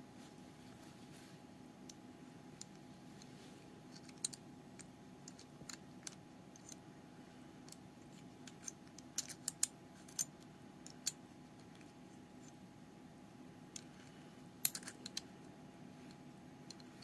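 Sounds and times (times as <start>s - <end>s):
small metal parts clicking and scraping: 3.9s - 6.8s, 7.6s - 12.6s, 13.7s - 15.3s.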